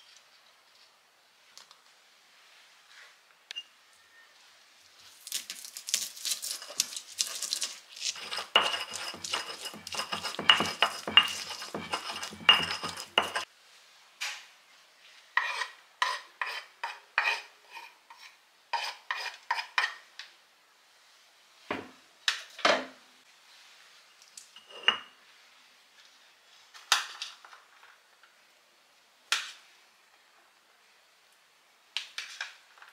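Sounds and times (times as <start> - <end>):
spoon scraping corn kernels: 5.3 - 13.5
stone pestle pounding in mortar: 8.2 - 13.4.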